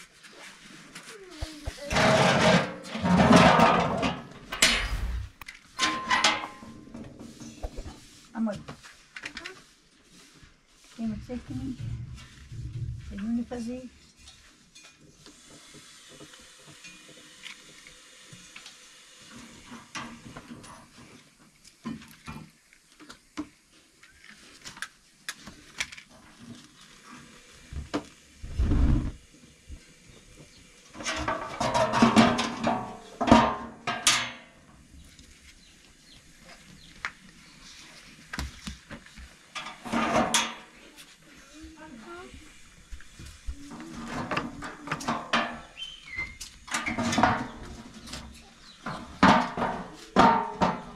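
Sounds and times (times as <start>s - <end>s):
metal trays clattering: 1.9s - 6.8s, 31.0s - 34.4s, 39.6s - 40.8s, 44.0s - 45.8s, 48.9s - 50.9s
burner igniting with thump: 4.4s - 5.6s
gas hissing: 4.5s - 5.4s.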